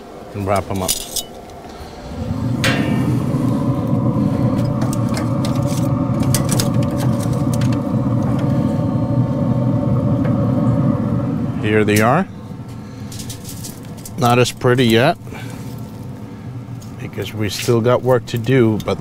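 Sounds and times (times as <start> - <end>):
faint fan hum: 0.0 - 19.0
low rumble: 1.4 - 17.0.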